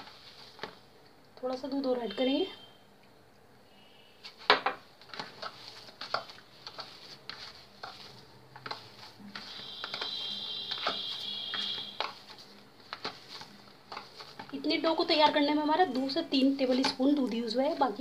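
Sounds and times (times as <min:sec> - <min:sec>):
hand squishing dough: 0:04.2 - 0:18.0.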